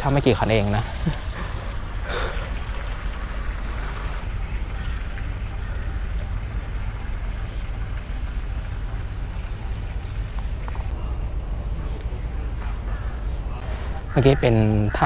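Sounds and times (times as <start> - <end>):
low outdoor rumble: 0.0 - 15.0
even hiss: 0.1 - 4.3.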